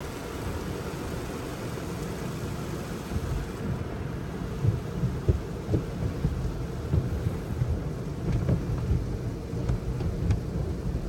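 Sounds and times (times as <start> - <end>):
water spraying over windshield: 0.4 - 11.0
wash brushes slapping car: 3.1 - 11.0.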